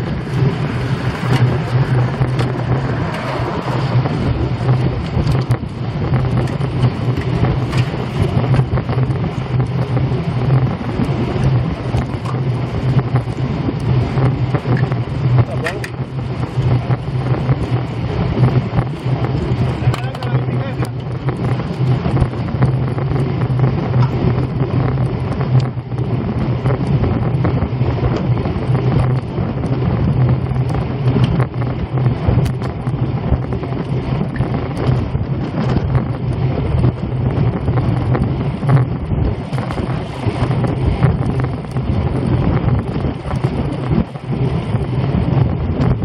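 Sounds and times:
steady low hum: 0.0 - 46.0
wind rushing over microphone: 0.0 - 46.0.

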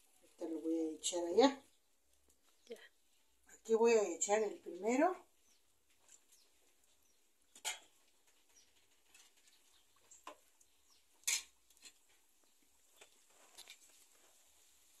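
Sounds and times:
frying oil pops and crackles: 11.2 - 12.0.

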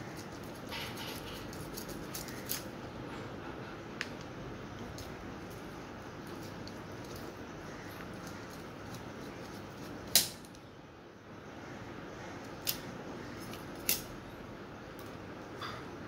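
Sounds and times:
blade snapping through chicken: 13.8 - 14.1.

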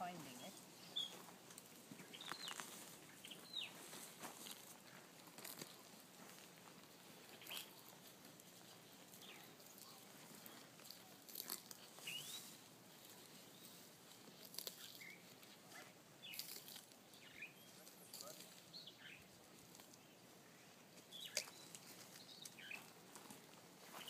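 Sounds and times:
tortoise crunching leaves: 0.0 - 24.0
bird chirps: 0.4 - 1.2, 2.0 - 3.8, 12.0 - 12.6, 16.2 - 17.9, 21.1 - 22.9.

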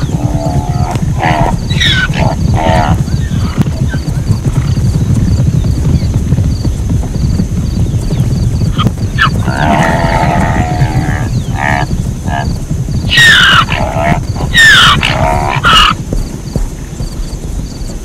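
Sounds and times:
zebra calling: 0.0 - 4.1, 8.7 - 16.0
steady low rumble: 0.0 - 18.0.

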